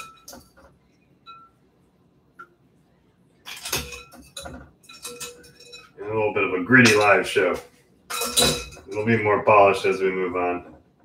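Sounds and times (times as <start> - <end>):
metal strainer clinking on glass: 0.0 - 0.6, 3.5 - 6.0, 8.1 - 9.2
clatter of metal and ice on glass: 0.0 - 0.7, 3.4 - 6.0, 8.1 - 9.2.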